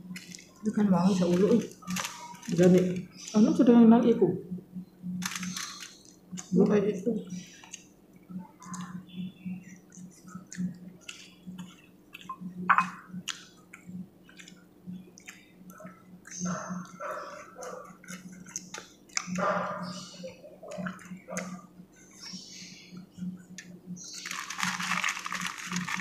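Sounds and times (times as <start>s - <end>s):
fingers clicking on foil: 0.1s - 3.6s, 5.2s - 6.5s, 24.1s - 26.0s
wet chewing and lip smacks: 9.7s - 12.6s, 13.2s - 22.4s.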